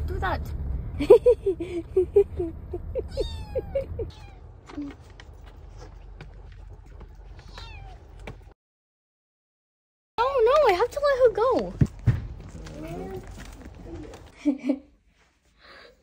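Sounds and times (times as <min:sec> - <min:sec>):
car engine low rumble: 0:00.0 - 0:08.5
kitten meowing: 0:03.1 - 0:04.9, 0:07.4 - 0:08.0.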